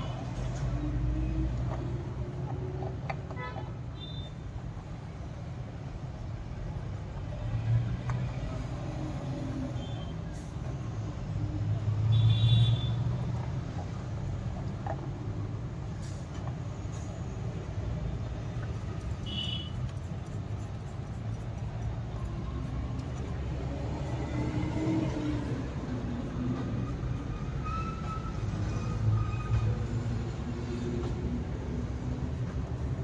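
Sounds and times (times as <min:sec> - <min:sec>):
vehicle engine rumble: 0:00.0 - 0:33.0.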